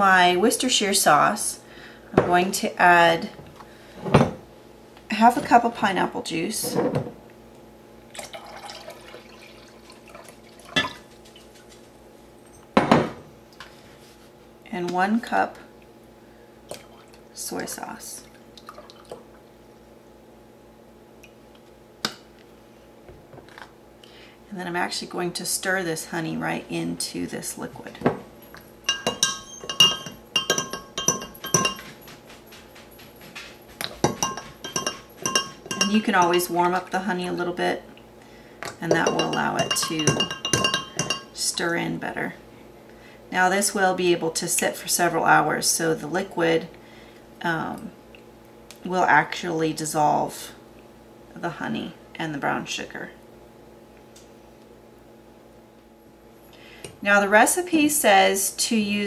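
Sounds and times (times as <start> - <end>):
juice pouring into glass cup: 8.1 - 10.8
spoon clinking against glass: 28.9 - 32.0, 34.0 - 36.5, 38.9 - 41.3.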